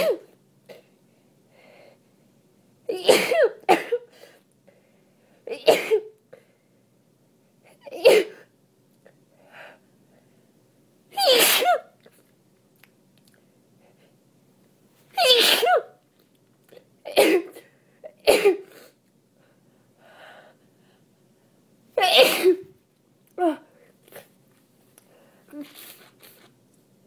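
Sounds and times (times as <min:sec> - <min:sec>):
person sneezing: 0:00.0 - 0:00.8, 0:02.9 - 0:04.4, 0:11.2 - 0:12.2, 0:15.2 - 0:16.0, 0:22.0 - 0:22.7
soft breaths or sniffs: 0:25.0 - 0:26.6.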